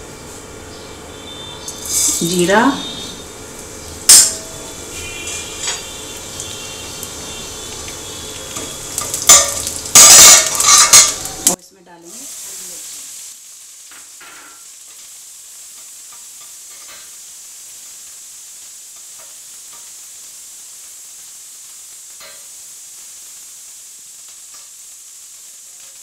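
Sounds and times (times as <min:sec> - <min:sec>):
chillies sizzling in hot oil: 0:00.0 - 0:26.0
steel spoon scraping a pan: 0:01.6 - 0:03.1, 0:04.1 - 0:06.0, 0:08.5 - 0:11.6.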